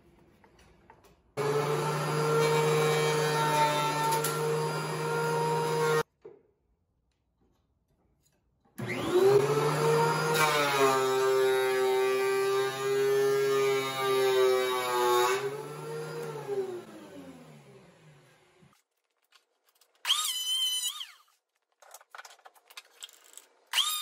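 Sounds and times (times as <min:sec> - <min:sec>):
planer cutting a board: 0:01.4 - 0:06.0, 0:08.8 - 0:18.7
thickness planer whining: 0:01.4 - 0:06.0, 0:08.8 - 0:18.7.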